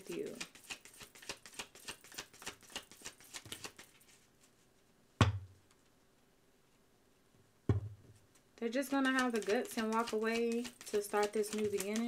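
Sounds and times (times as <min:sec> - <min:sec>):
cards being shuffled: 0:00.0 - 0:04.3, 0:08.7 - 0:12.0.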